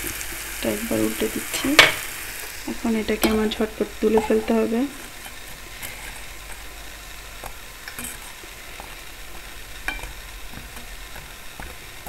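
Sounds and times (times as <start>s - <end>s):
food sizzling in hot oil: 0.0s - 12.0s
metal spoon clicking on pan: 3.2s - 4.6s, 9.8s - 10.2s.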